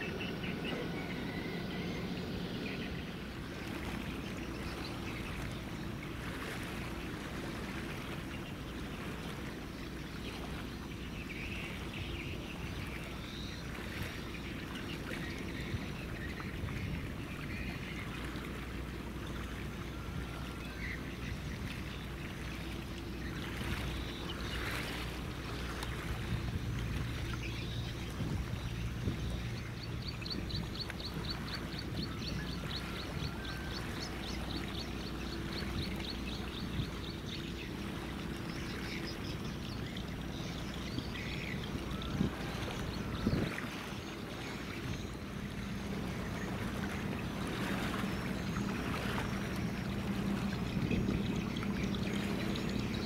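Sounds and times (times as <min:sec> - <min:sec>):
ship engines droning: 0:00.0 - 0:53.0
water washing along hulls: 0:00.0 - 0:53.0.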